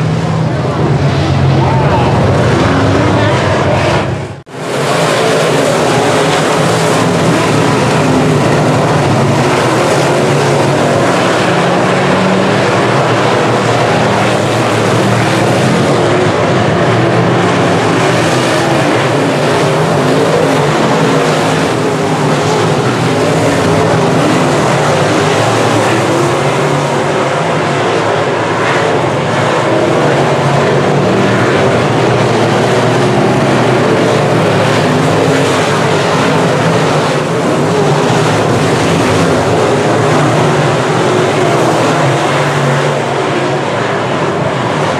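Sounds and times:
race car engines droning: 0.0s - 44.9s.

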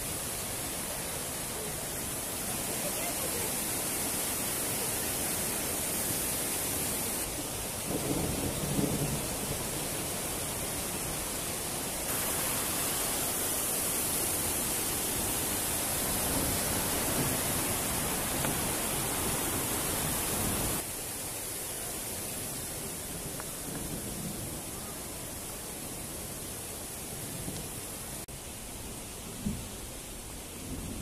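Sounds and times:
river rushing: 0.0s - 23.6s.

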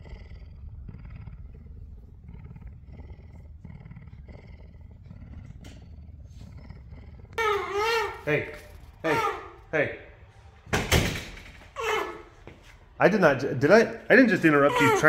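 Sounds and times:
big cat roaring: 0.0s - 9.6s, 14.6s - 15.0s.

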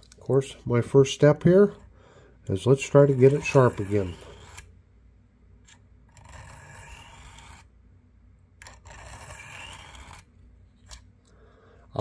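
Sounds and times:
knife blade scraping on sharpener: 6.1s - 7.7s, 8.6s - 10.2s.

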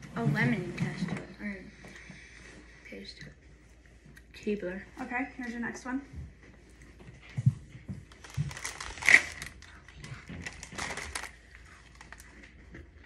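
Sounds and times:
cookies crunching being chewed: 7.8s - 13.0s.

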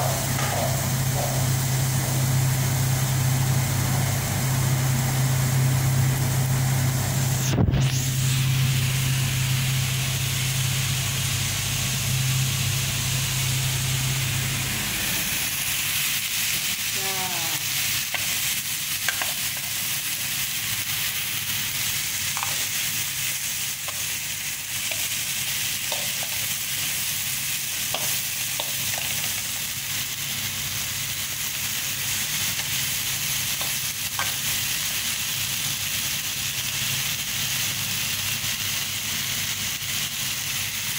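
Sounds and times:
low hum: 0.0s - 16.4s
vegetables sizzling in a pan: 0.0s - 40.9s.

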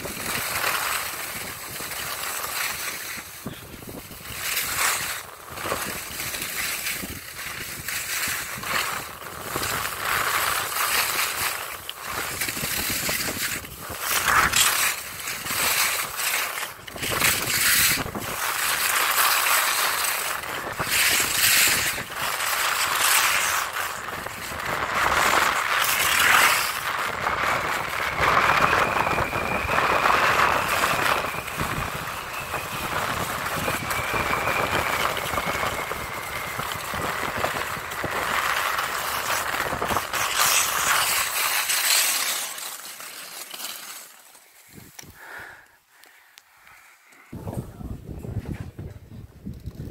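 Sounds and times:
skis scraping over snow: 0.0s - 47.4s
wind on microphone: 3.0s - 10.7s, 11.3s - 41.0s, 47.3s - 49.9s.

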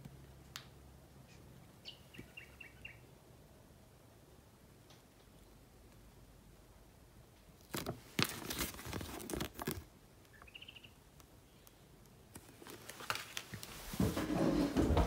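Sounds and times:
faint high chirp: 1.8s - 3.1s, 10.3s - 11.7s
paper crinkling and rustling: 7.6s - 9.9s, 12.3s - 15.0s.

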